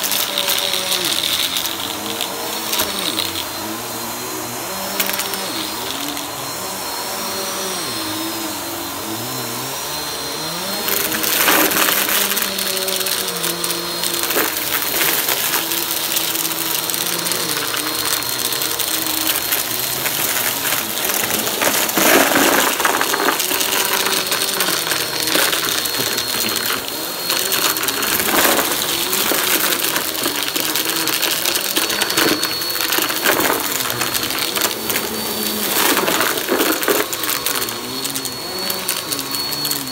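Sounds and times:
vacuum cleaner whining: 0.0s - 39.9s
paper crackling through vacuum: 10.0s - 39.9s.

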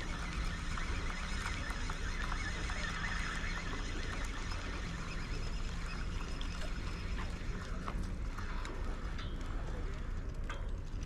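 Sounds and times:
light irregular ticks: 0.0s - 11.0s.

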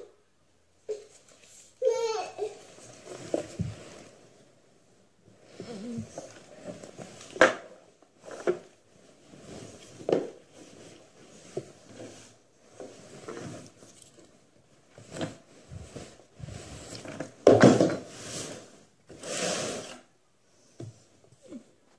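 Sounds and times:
fabric rustling: 8.2s - 17.4s.

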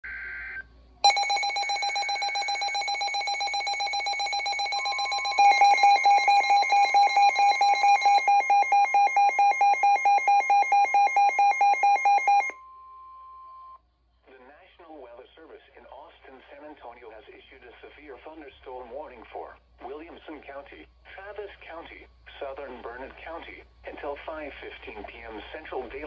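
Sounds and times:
two-tone data burst: 0.0s - 12.5s
rapid alarm beeping: 1.0s - 12.6s
steady alert tone: 1.1s - 8.6s.

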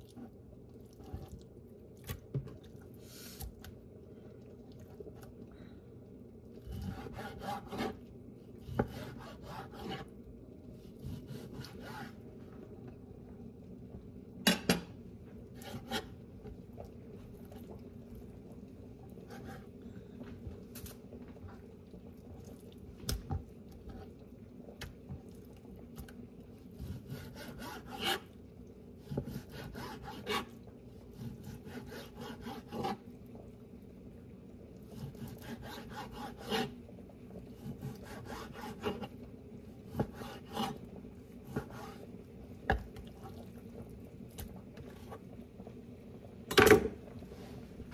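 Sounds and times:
knife sawing through raw meat: 6.9s - 8.0s, 27.0s - 28.2s, 29.3s - 30.4s, 31.4s - 33.0s.

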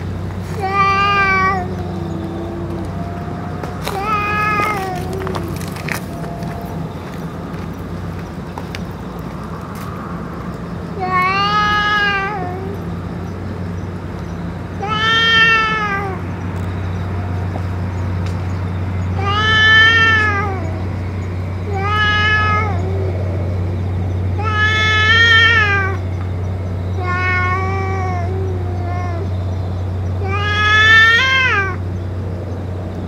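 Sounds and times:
cat meowing: 0.6s - 7.3s, 11.0s - 12.8s, 14.8s - 16.2s, 19.2s - 20.8s, 21.7s - 23.1s, 24.4s - 26.0s, 27.0s - 29.3s, 30.2s - 31.8s.

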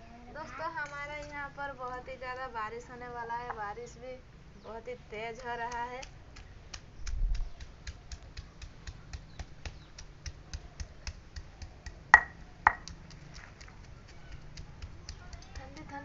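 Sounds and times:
stone pestle pounding on stone: 7.6s - 12.9s.

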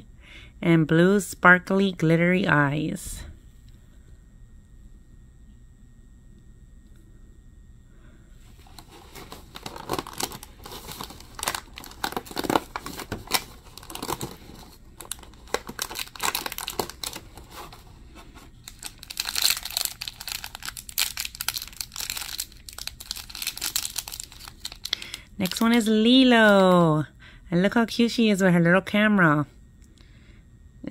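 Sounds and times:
plastic bag crinkling and tearing: 8.6s - 25.8s.

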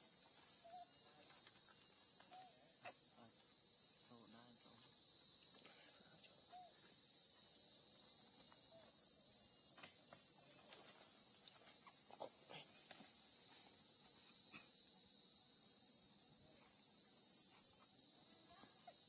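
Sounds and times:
insect chorus drone: 0.0s - 19.0s.

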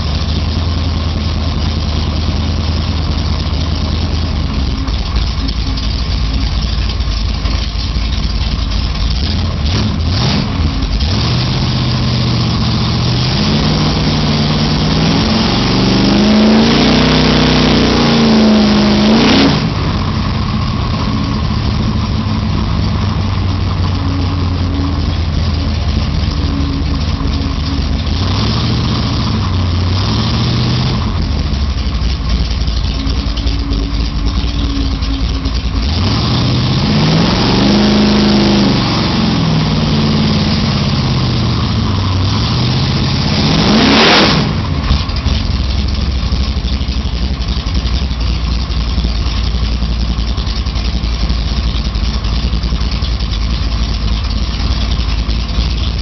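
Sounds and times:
car engine revving inside cabin: 8.2s - 48.2s.

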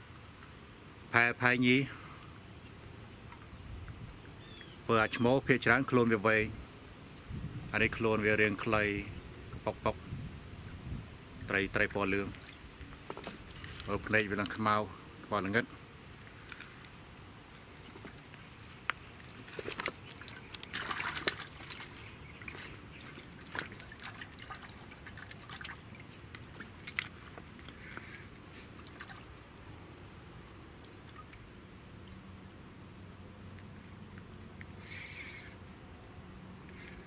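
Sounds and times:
water splashes and drips: 12.2s - 14.6s, 17.9s - 28.1s, 28.7s - 29.3s.

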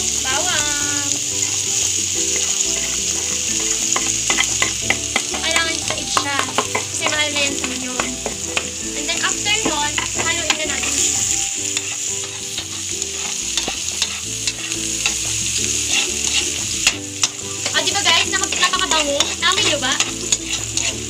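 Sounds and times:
onion sizzling in hot oil: 0.0s - 21.0s
spatula scraping wok: 0.0s - 21.0s
spatula clicking against pan: 3.9s - 8.7s, 11.8s - 15.2s, 15.9s - 21.0s.

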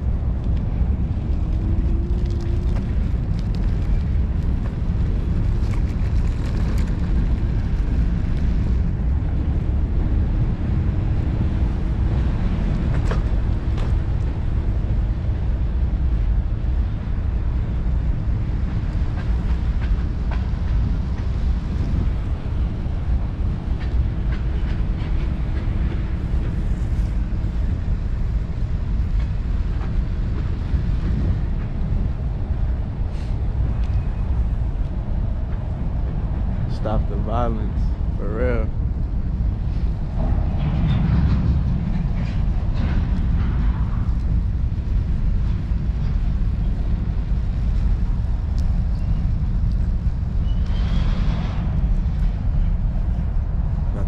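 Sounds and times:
wheels rolling over pavement: 0.0s - 16.8s
wind rumble on microphone: 0.0s - 54.0s.

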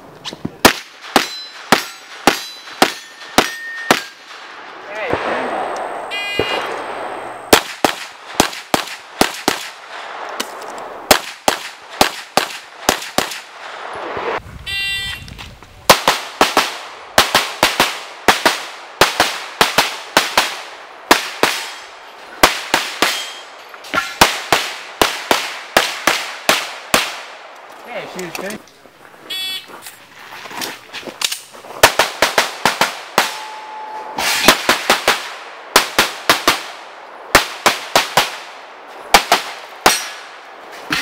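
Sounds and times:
rapid handgun shots: 6.4s - 9.9s, 11.1s - 13.5s, 15.9s - 21.8s, 24.1s - 27.3s, 31.8s - 33.5s, 34.2s - 38.5s, 39.1s - 40.3s.

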